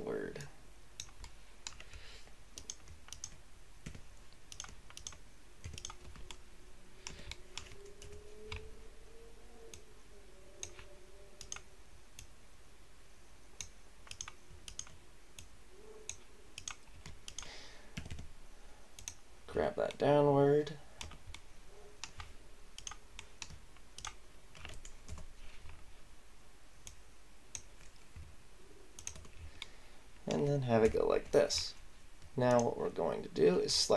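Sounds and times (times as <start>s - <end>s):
computer mouse clicks: 0.4s - 6.4s, 7.0s - 8.7s, 9.6s - 9.9s, 10.6s - 12.3s, 13.6s - 18.3s, 19.0s - 19.2s, 21.0s - 25.8s, 26.8s - 28.3s, 29.0s - 29.8s
keyboard keys pressed: 2.6s - 6.4s, 13.6s - 18.3s.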